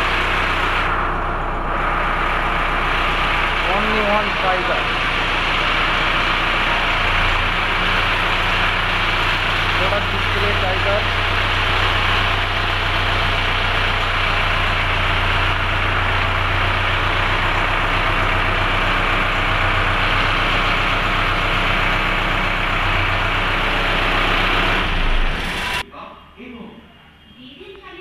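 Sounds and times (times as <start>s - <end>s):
tractor diesel engine idling: 0.0s - 25.8s.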